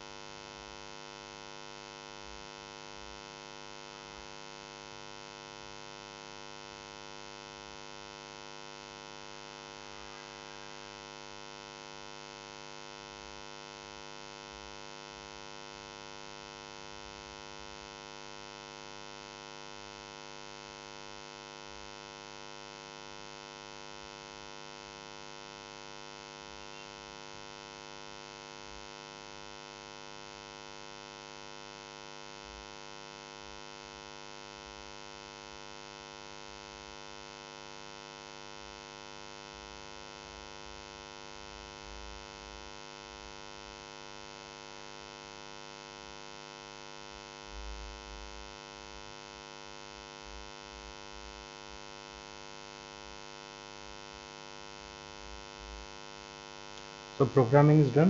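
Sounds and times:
steady electrical hum: 0:00.1 - 0:18.6, 0:19.4 - 0:30.5, 0:54.9 - 0:58.0.

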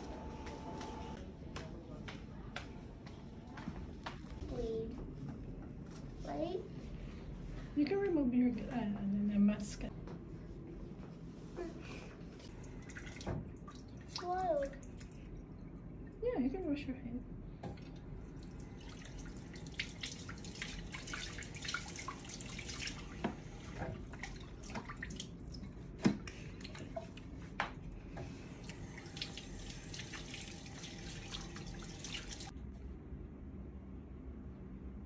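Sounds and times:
hands washing with splashing: 0:12.4 - 0:15.3, 0:17.8 - 0:32.5
faucet water running into sink: 0:18.4 - 0:25.7, 0:28.3 - 0:32.5.

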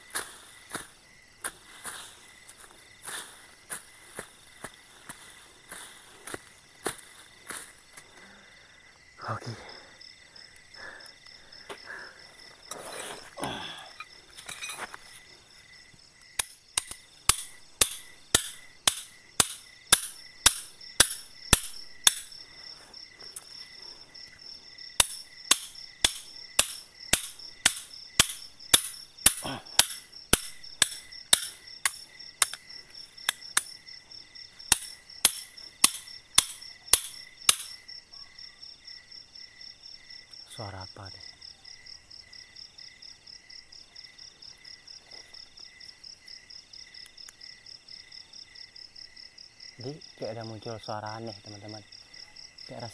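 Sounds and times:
crickets and insects chirring: 0:00.0 - 0:52.9
hammer striking tent stakes: 0:16.3 - 0:22.4, 0:25.0 - 0:33.8, 0:34.7 - 0:37.8.

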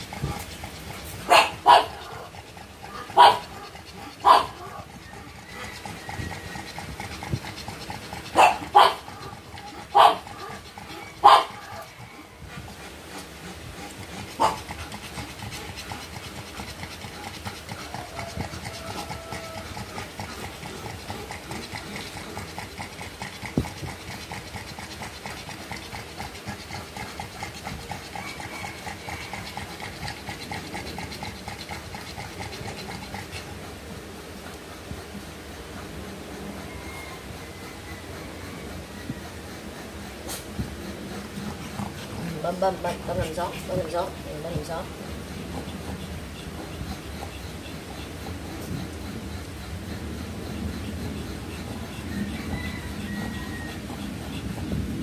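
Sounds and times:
dog panting: 0:00.0 - 0:55.0.

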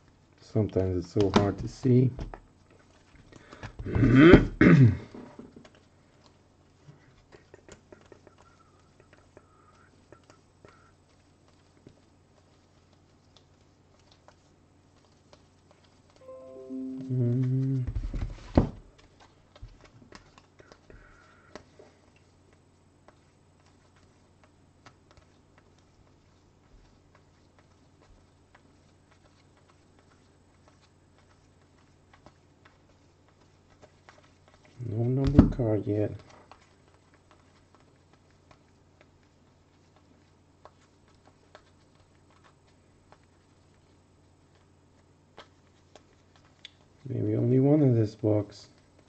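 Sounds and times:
trading cards leafed through: 0:05.6 - 0:47.1
faint thin wavering tone: 0:16.2 - 0:17.9
low hum: 0:16.2 - 0:18.0.

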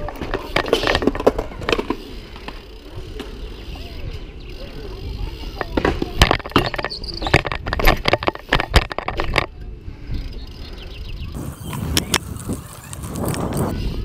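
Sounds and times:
bike chain and frame rattling: 0:00.0 - 0:09.7, 0:11.4 - 0:14.0
tyres rumbling on ground: 0:11.4 - 0:14.0.

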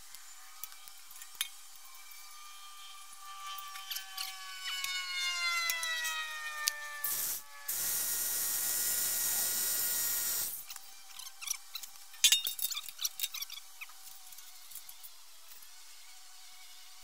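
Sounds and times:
cordless drill motor: 0:00.0 - 0:12.2.

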